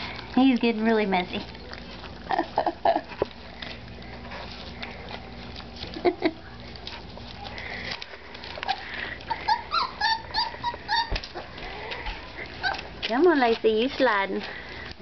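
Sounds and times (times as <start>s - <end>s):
puppy whimpering: 8.6s - 13.0s.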